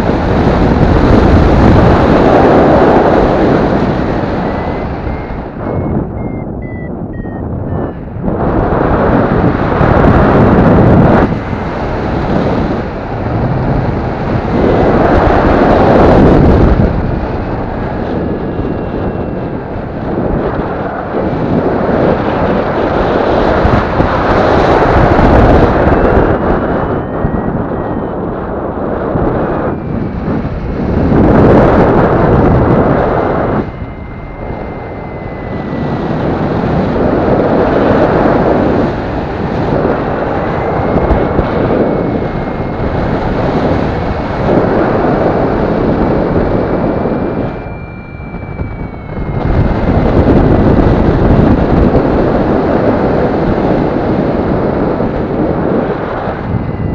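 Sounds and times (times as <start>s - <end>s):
wind buffeting microphone: 0.0s - 56.9s
faint wavering high tone: 3.6s - 8.4s, 25.4s - 30.2s, 33.0s - 36.8s, 40.2s - 44.0s, 46.7s - 51.0s, 56.1s - 56.9s.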